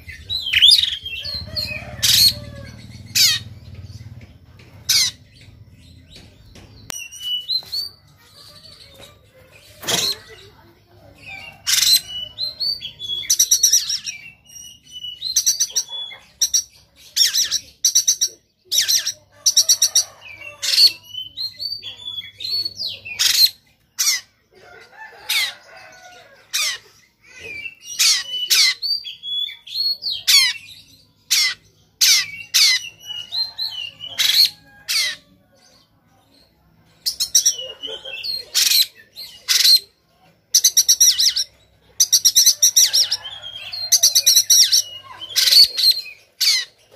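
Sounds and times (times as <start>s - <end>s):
bird singing varied phrases: 4.9s - 24.4s, 40.6s - 46.9s.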